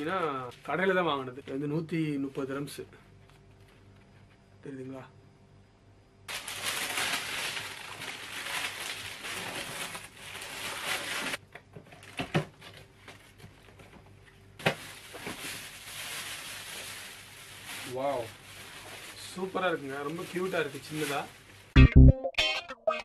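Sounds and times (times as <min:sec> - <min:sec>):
packaging rustling and crinkling: 0:06.3 - 0:21.8.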